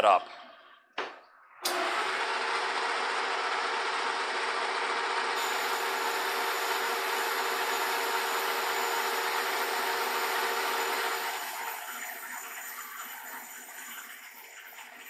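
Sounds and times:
machine running tones: 1.6s - 12.6s
lathe tool cutting steel hiss: 5.4s - 11.8s.

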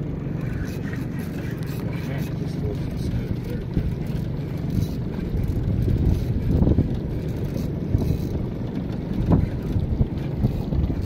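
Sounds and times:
wind rumble on microphone: 2.6s - 11.0s.

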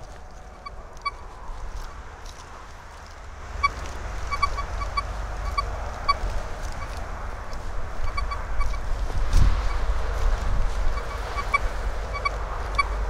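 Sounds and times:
metal detector beeps: 3.6s - 5.6s, 8.0s - 8.8s, 11.0s - 13.0s.

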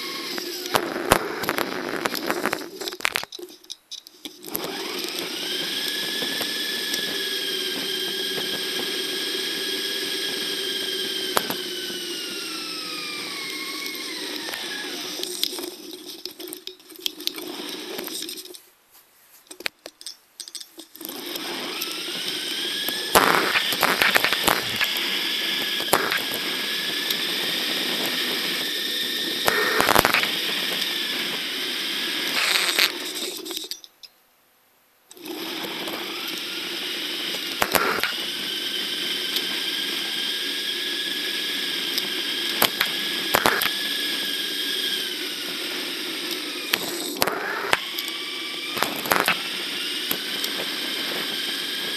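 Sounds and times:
high whirring noise: 0.0s - 18.6s, 20.8s - 33.9s, 35.1s - 51.9s
sharp clicks: 0.1s - 8.6s, 10.2s - 18.4s, 19.5s - 27.3s, 29.4s - 31.4s, 37.3s - 40.1s, 41.9s - 43.9s, 46.2s - 51.9s.

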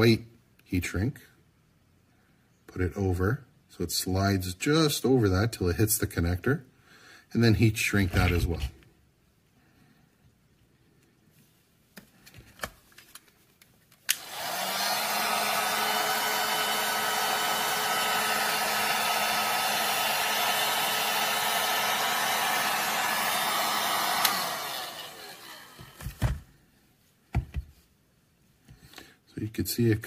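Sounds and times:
fan winding down: 14.1s - 26.0s
heat gun blowing: 14.1s - 26.4s
heat gun switch click: 24.2s - 24.5s.

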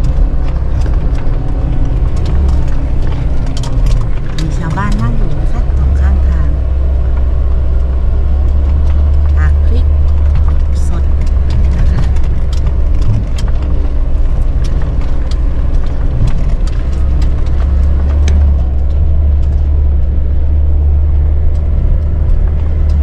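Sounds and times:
engine and tyres rumbling: 0.0s - 23.0s
vehicle clicks and knocks: 0.0s - 23.0s.

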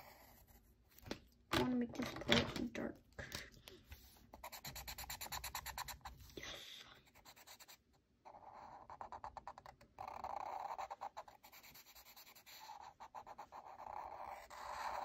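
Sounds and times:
marker scratching on paper: 0.0s - 0.7s, 3.9s - 6.4s, 7.0s - 15.0s.

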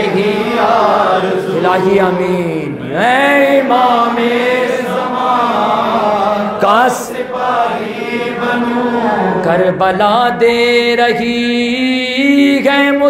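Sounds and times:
man chanting into a microphone: 0.0s - 5.0s, 6.4s - 7.2s, 9.2s - 13.0s.

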